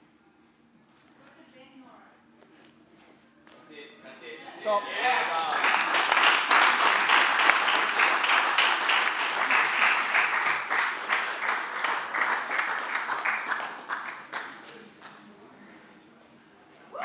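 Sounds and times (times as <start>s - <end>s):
spectators applauding: 5.2s - 14.7s.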